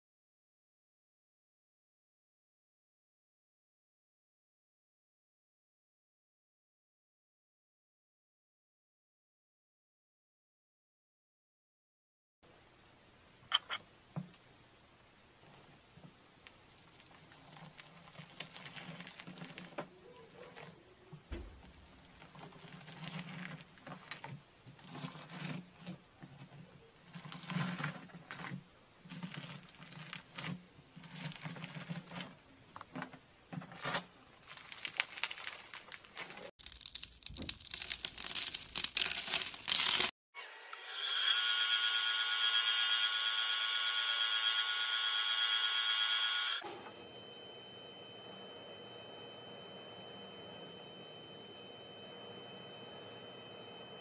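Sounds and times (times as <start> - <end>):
wood lathe whining: 40.4 - 54.0.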